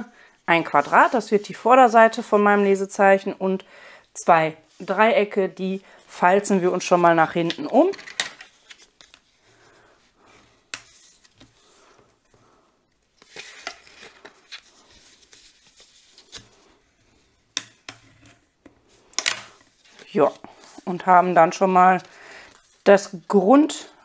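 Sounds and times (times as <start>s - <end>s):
paper rustling: 8.4s - 17.4s.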